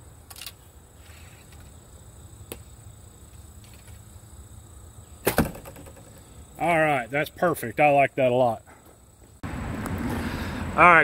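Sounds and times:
arrow thudding into foam target: 5.2 - 6.1.

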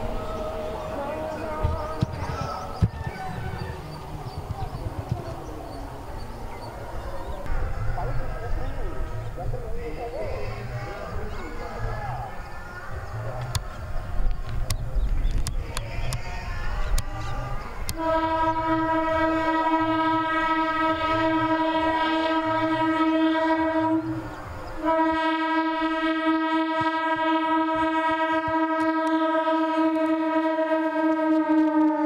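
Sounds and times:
train wheels on rails: 0.0 - 22.9
train horn blasts: 17.9 - 32.0.

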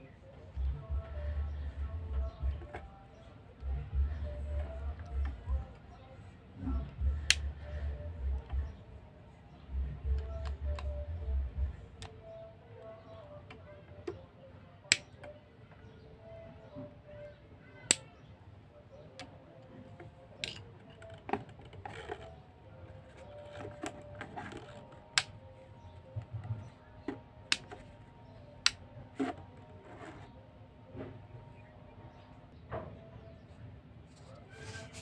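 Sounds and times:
plastic light switch clicks: 27.5 - 27.8.

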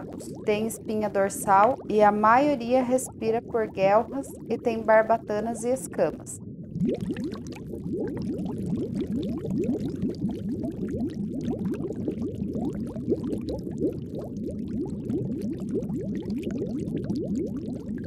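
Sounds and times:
soft watery rush: 0.0 - 10.9
water bubbling: 0.0 - 18.0.

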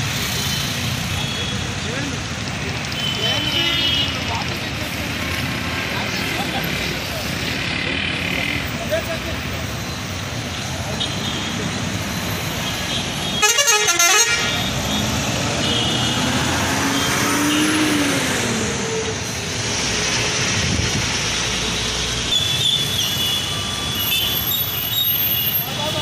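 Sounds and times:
traffic passing: 0.0 - 26.0
vehicle horn blast: 13.2 - 14.7
engine revving: 14.6 - 21.7.

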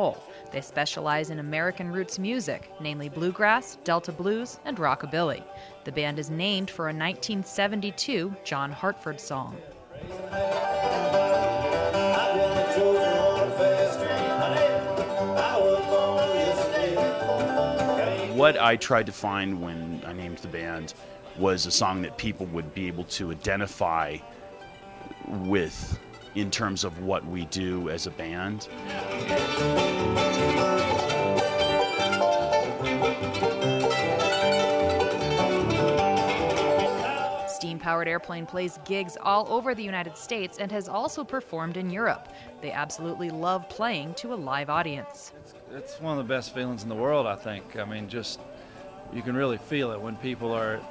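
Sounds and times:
acoustic guitar: 0.0 - 50.9
picked banjo: 10.0 - 50.9
plucked upright bass: 10.1 - 19.6, 25.1 - 37.4.

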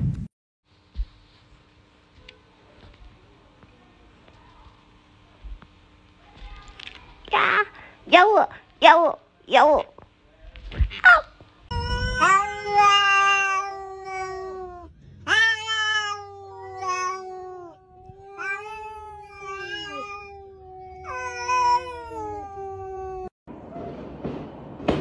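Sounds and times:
cat meowing: 11.7 - 23.3.

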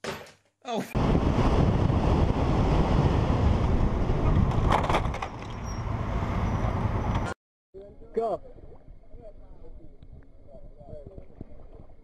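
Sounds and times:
wind buffeting microphone: 1.0 - 5.3
road and vehicle noise: 1.0 - 7.4.

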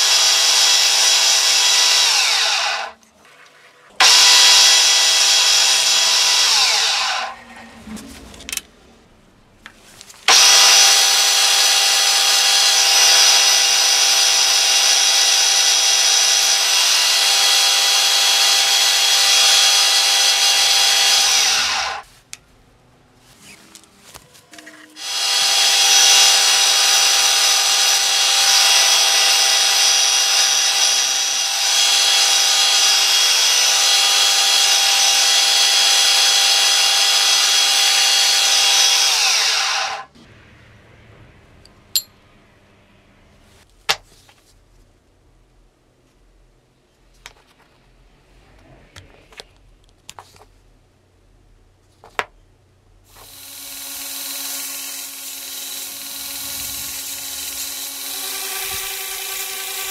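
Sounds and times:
drill bit cutting wood: 0.0 - 3.0, 4.0 - 7.4, 10.3 - 22.0, 25.0 - 40.1, 53.1 - 59.9
milling machine motor whine: 53.2 - 59.9.

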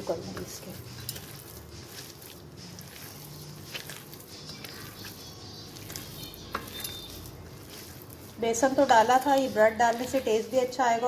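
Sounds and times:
hand squelching mince: 0.0 - 11.0.

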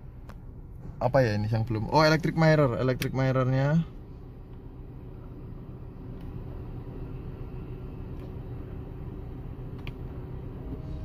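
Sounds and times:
car cabin hum: 0.0 - 11.0
faint mirror motor clicks: 9.7 - 10.1.

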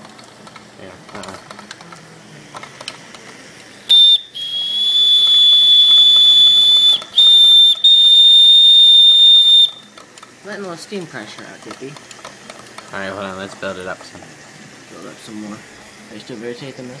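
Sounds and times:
steam whistle: 3.9 - 9.9.

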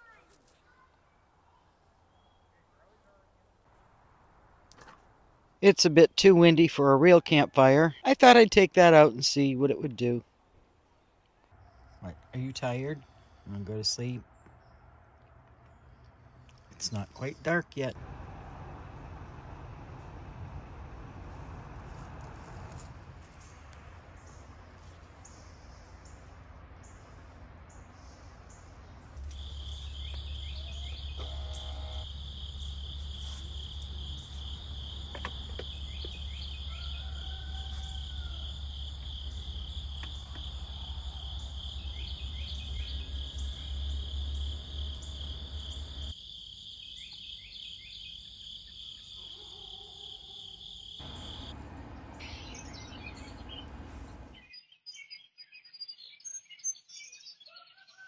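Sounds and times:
bird call: 29.2 - 46.1
insects trilling: 29.2 - 51.6.

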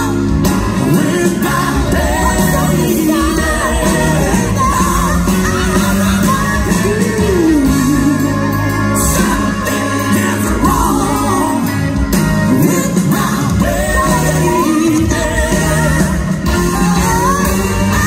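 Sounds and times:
woman singing: 0.0 - 11.8, 12.5 - 18.0
band playing soul music: 0.0 - 18.0
man singing: 0.0 - 18.0.

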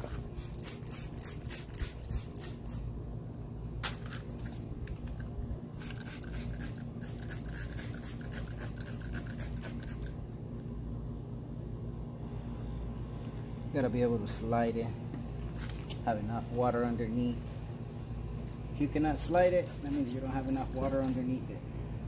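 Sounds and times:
spray bottle spritzing: 0.0 - 2.8, 5.8 - 10.2
steady low hum: 0.0 - 22.0.

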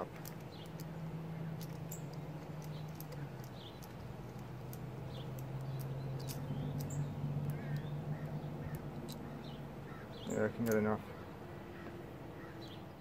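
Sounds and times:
steady low hum: 0.0 - 13.0
light clicks on metal: 0.1 - 9.6, 10.2 - 11.0.

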